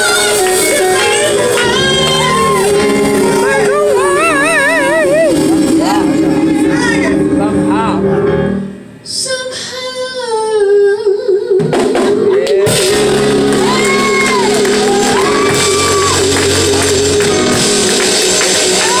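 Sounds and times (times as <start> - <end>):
woman singing: 0.0 - 7.2, 9.0 - 13.0
musical backing: 0.0 - 19.0.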